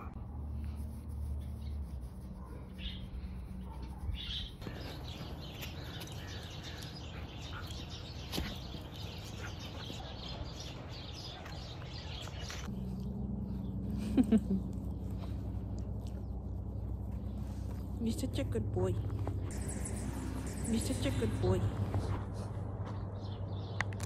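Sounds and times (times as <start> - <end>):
steady low hum: 0.0 - 8.1, 12.3 - 23.3
small birds chirping: 0.0 - 22.2.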